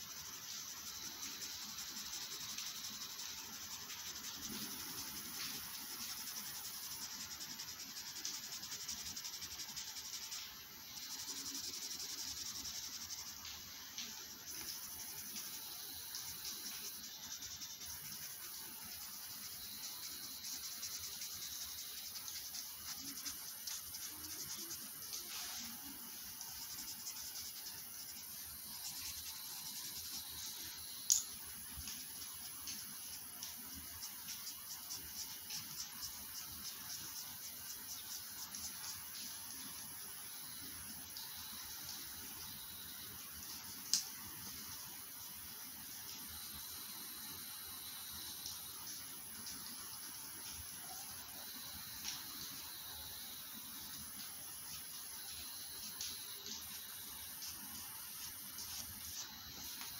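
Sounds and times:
faint chirr: 0.0s - 43.7s
high-pitched hiss: 0.0s - 59.9s.

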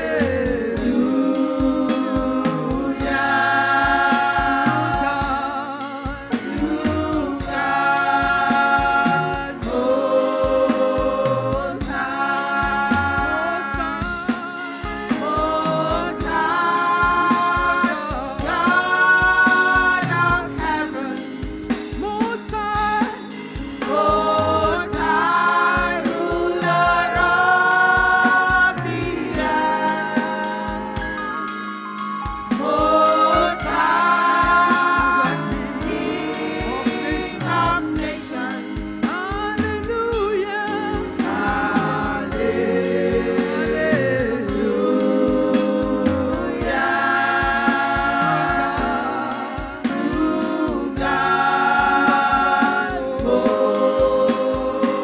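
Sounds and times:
band with drum beat: 0.0s - 55.0s
voices singing together: 0.0s - 55.0s.

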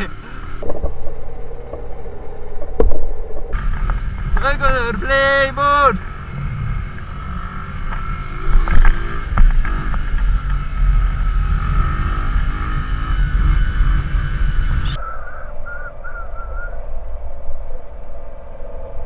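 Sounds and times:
wind rumble on microphone: 0.5s - 5.1s, 6.0s - 19.0s
motorcycle engine running: 3.4s - 15.0s
sharp knocks: 7.9s - 10.6s.

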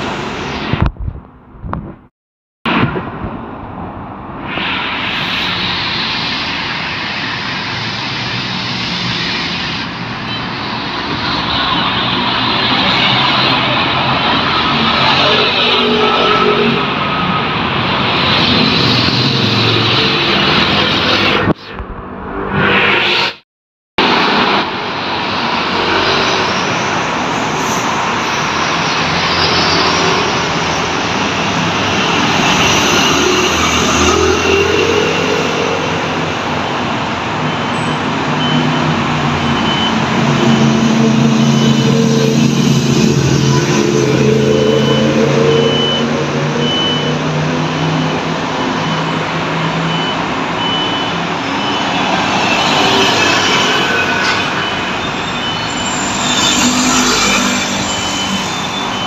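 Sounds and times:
traffic passing: 2.7s - 23.2s, 24.0s - 59.0s
faint high beep: 41.4s - 42.1s, 44.4s - 47.2s, 49.9s - 59.0s.

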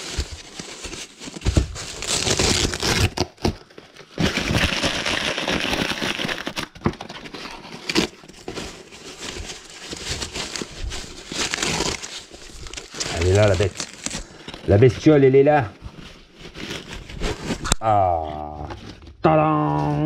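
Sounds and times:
foam sheet crinkling and rustling: 0.0s - 17.8s.

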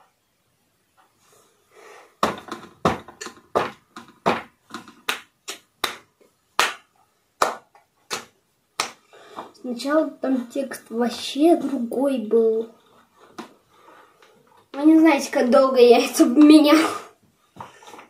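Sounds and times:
hand claps and slaps: 2.2s - 9.1s.

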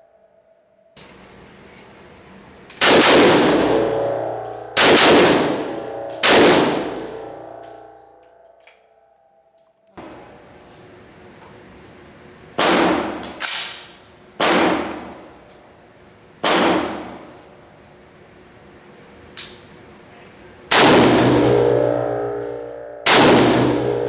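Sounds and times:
rifle shots with echo: 2.8s - 4.1s, 4.7s - 7.3s, 14.4s - 15.2s, 20.7s - 21.7s, 23.0s - 24.0s
loud ringing metal clangs: 2.8s - 9.1s, 20.7s - 24.0s.

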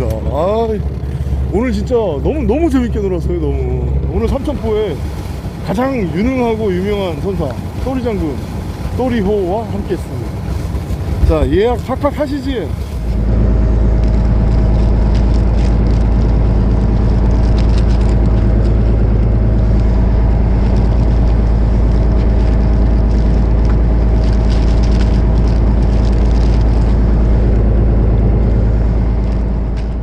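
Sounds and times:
boat engine droning: 0.0s - 30.0s
plastic bag rustling: 20.5s - 27.2s.

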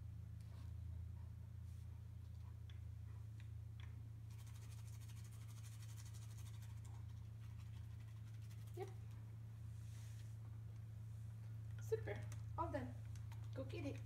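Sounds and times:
steady low hum: 0.0s - 14.0s
toothbrush scrubbing teeth: 3.8s - 9.2s.

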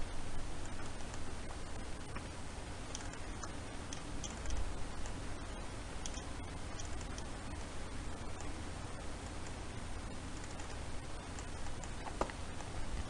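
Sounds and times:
microphone hiss and hum: 0.0s - 13.0s
mouse and keyboard clicks: 2.9s - 5.2s, 6.0s - 7.7s, 10.4s - 12.8s.

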